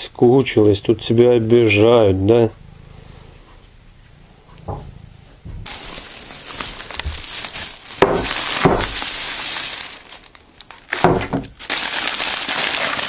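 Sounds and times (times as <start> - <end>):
plastic bag rustling: 5.5 - 13.0.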